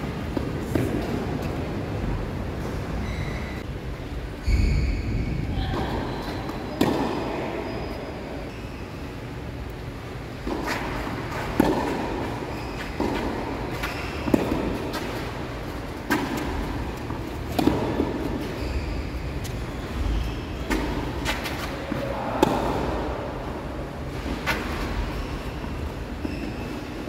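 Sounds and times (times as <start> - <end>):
tennis racket hitting ball: 6.4 - 7.3, 10.4 - 18.6, 20.6 - 23.3.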